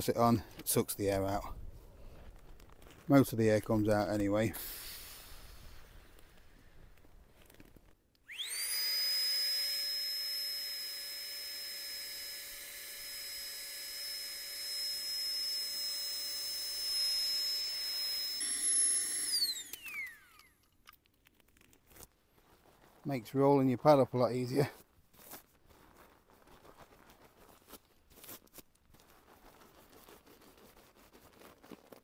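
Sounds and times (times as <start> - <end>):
air pump high whine: 4.5 - 6.2, 8.3 - 20.5.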